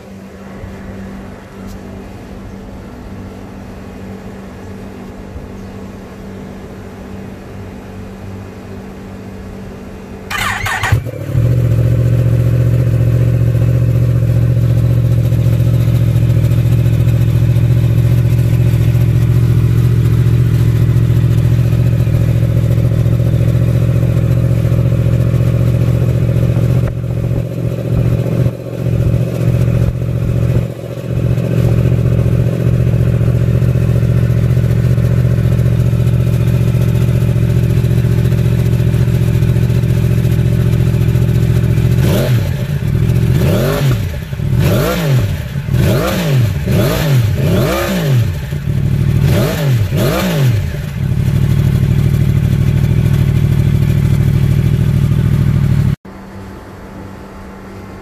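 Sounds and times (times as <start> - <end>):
engine throttle blips: 0.0 - 58.0
motorcycle engine idling: 10.3 - 56.0.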